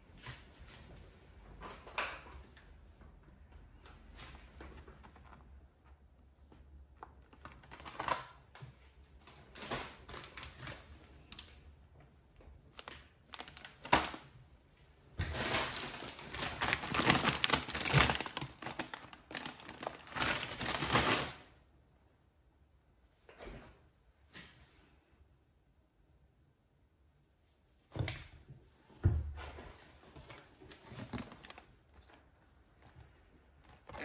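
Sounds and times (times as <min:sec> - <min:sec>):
plastic packaging crinkling: 0:07.1 - 0:11.6, 0:12.7 - 0:14.3, 0:15.2 - 0:21.5, 0:30.2 - 0:34.0.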